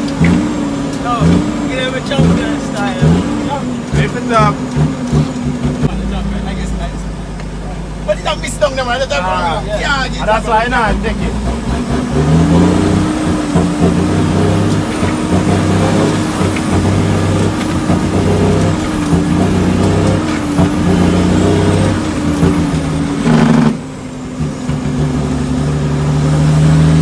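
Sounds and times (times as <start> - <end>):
truck diesel engine under load: 0.0 - 27.0.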